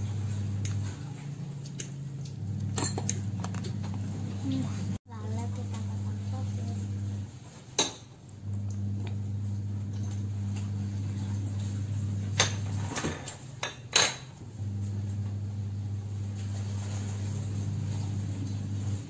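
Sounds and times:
steady low hum: 0:00.0 - 0:07.3.

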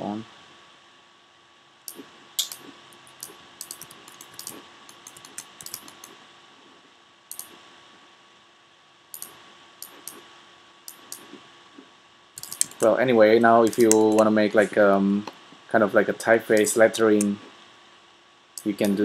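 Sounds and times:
computer keyboard clicking: 0:01.9 - 0:06.2, 0:07.3 - 0:07.5, 0:09.2 - 0:10.2, 0:10.9 - 0:11.3, 0:12.4 - 0:12.9, 0:13.6 - 0:14.3
mouse clicking: 0:01.9 - 0:06.2, 0:07.3 - 0:07.6, 0:09.1 - 0:10.2, 0:10.9 - 0:11.4, 0:12.4 - 0:12.9, 0:13.6 - 0:14.3, 0:16.5 - 0:17.4, 0:18.6 - 0:19.0.

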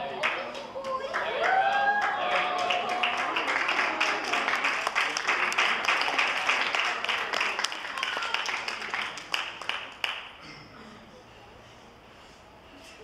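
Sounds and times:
people applauding: 0:00.0 - 0:10.4.

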